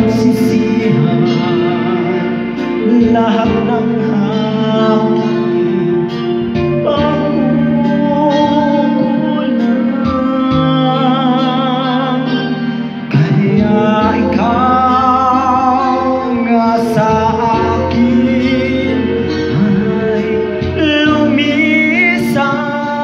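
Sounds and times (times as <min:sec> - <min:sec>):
karaoke backing track: 0:00.0 - 0:23.0
person singing into a microphone: 0:00.0 - 0:23.0.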